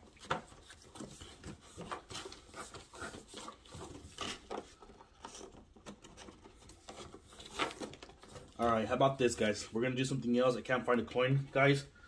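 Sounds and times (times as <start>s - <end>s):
rummaging rustling and knocks: 0.0s - 8.6s.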